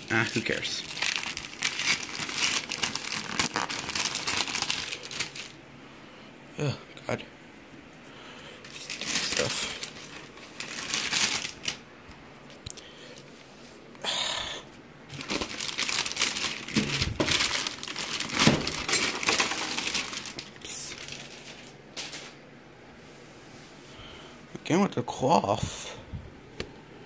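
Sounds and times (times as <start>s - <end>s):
plastic bag crinkling: 0.0s - 5.6s, 8.6s - 11.9s, 15.1s - 22.4s.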